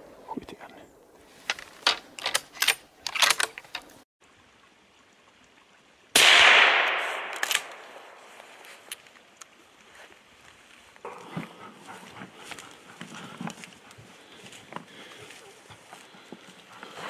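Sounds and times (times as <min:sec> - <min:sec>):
rifle shot with echo: 0:06.2 - 0:08.2.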